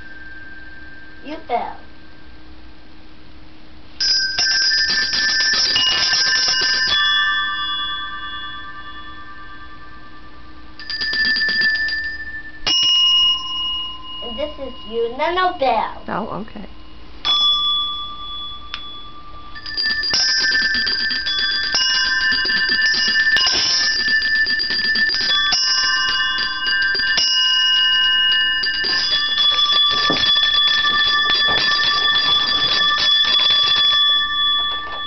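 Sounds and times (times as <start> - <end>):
toy handbells jangling: 19.5 - 35.0.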